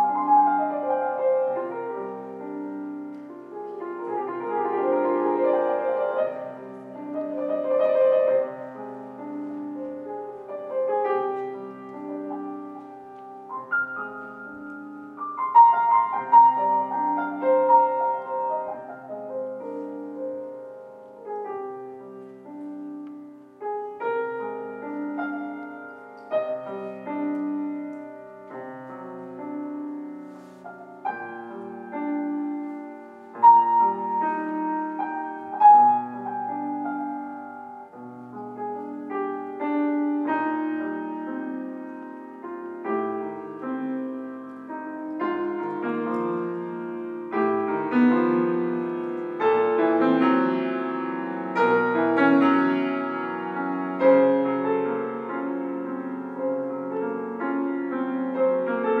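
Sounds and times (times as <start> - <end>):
grand piano playing chords: 0.0 - 59.0.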